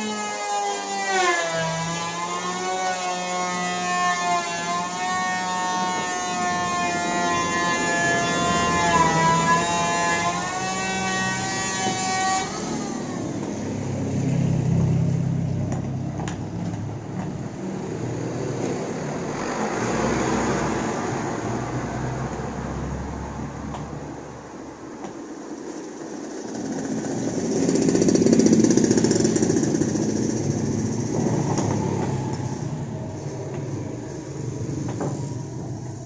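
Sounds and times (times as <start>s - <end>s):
horn long pitched tone: 0.0s - 13.3s, 28.7s - 36.0s
low engine rumble: 26.6s - 36.0s.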